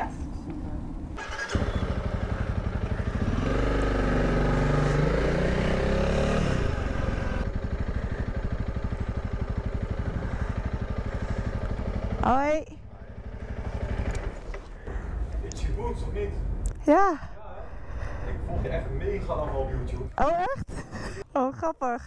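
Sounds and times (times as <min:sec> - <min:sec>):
motorcycle engine pulling away: 0:01.2 - 0:15.3.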